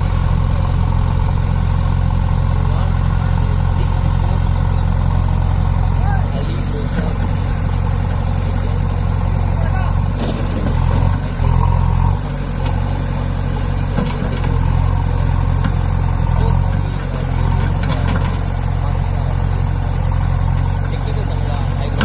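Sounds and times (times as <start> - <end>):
diesel engine running under load: 0.0 - 22.0.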